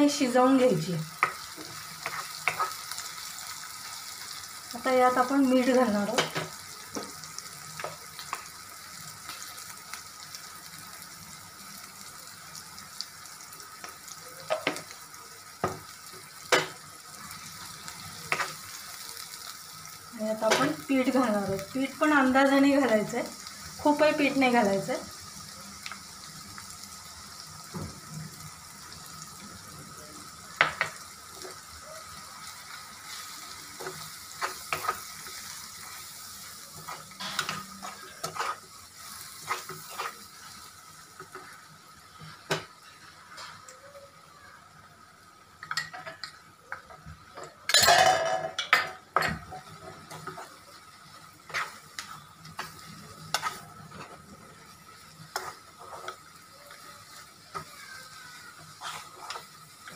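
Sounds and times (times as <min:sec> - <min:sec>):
low sizzle: 0:00.0 - 0:59.9
wooden spatula scraping a pan: 0:36.8 - 0:40.6, 0:51.4 - 0:54.4, 0:55.3 - 0:56.3, 0:57.6 - 0:59.9.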